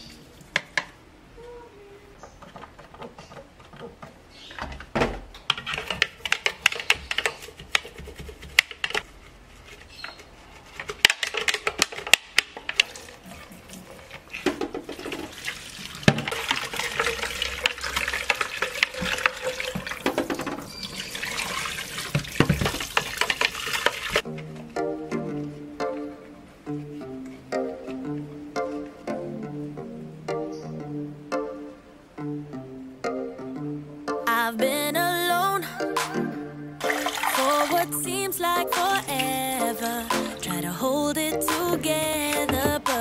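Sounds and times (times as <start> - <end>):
brush scrubbing plastic jar: 5.6 - 11.9, 36.9 - 38.0
tap water running: 12.6 - 24.3, 36.8 - 38.0.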